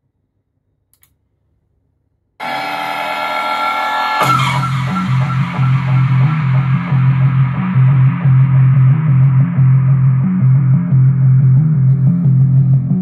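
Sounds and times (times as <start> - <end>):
sweep sound: 2.4 - 8.9
held synth chord: 2.4 - 9.4
pulsing bass beat: 2.4 - 13.0.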